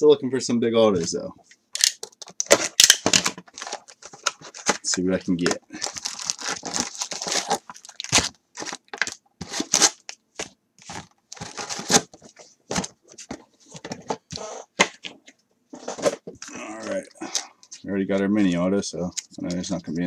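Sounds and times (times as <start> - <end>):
wrapped card packs crinkling: 1.8 - 12.4.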